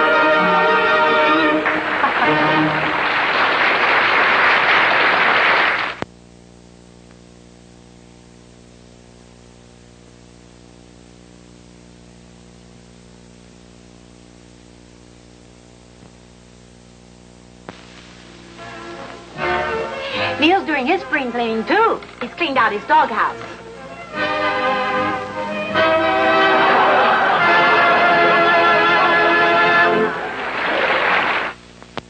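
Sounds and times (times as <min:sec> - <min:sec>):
music: 0:00.0 - 0:04.2, 0:17.7 - 0:31.0
steady electrical hum: 0:00.0 - 0:32.0.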